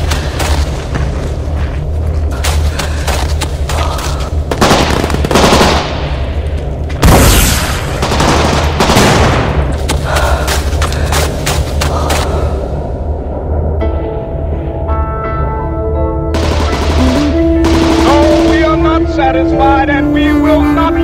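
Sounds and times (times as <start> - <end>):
steady low hum: 0.0 - 21.0
automatic gunfire bursts: 4.6 - 5.9.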